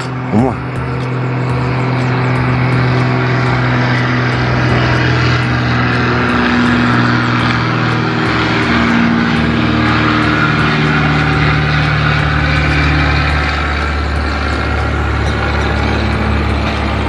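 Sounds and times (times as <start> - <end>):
jet engine roar: 0.0 - 17.0.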